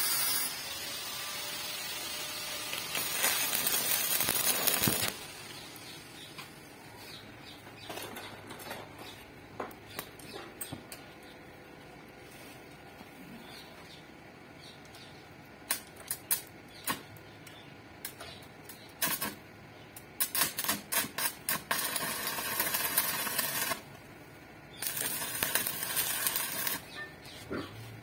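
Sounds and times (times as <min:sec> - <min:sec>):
welding arc crackling: 0:00.0 - 0:06.6, 0:15.6 - 0:27.1.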